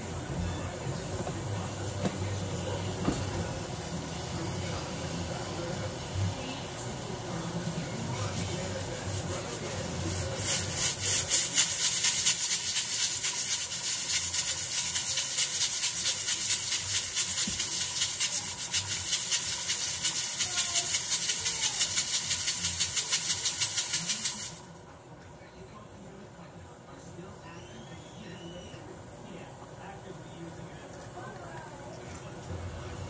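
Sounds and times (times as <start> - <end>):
rapid scraping strokes: 8.3 - 24.6.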